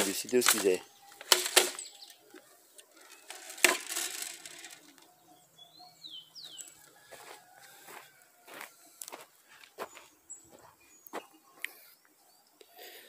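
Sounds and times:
bird chirping: 0.0 - 3.3, 4.8 - 7.1, 8.7 - 13.0.

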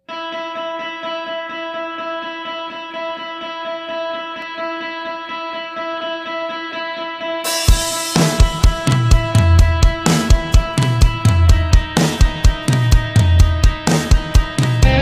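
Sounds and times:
instrumental music with picked pulse: 0.0 - 15.0
heavy low beats: 7.7 - 15.0.

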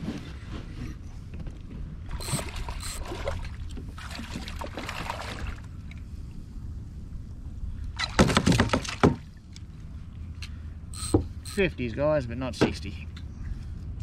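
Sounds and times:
low steady rumble: 0.0 - 8.1, 9.2 - 14.0
splashing and knocking around kayak: 2.1 - 5.8.

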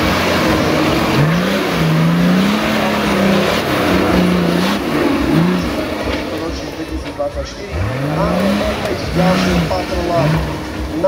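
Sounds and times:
engine revving hard: 0.0 - 11.0.

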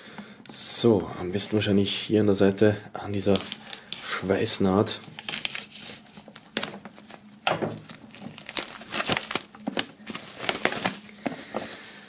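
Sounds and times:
plastic film crinkling and tearing: 3.1 - 12.0.

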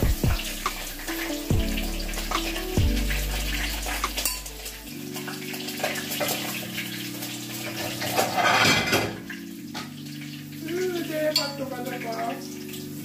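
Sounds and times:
tap water running: 0.0 - 13.0
dishes and utensils clinking: 7.6 - 10.0.

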